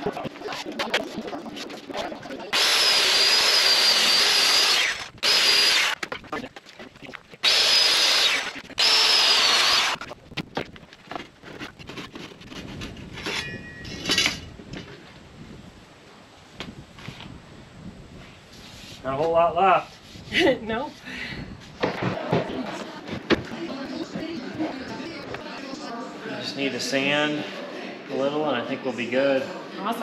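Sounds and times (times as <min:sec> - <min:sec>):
table saw cutting wood: 0:02.5 - 0:06.0, 0:07.4 - 0:10.0
knocks and clatter of wood handled: 0:10.0 - 0:13.4, 0:21.8 - 0:23.5.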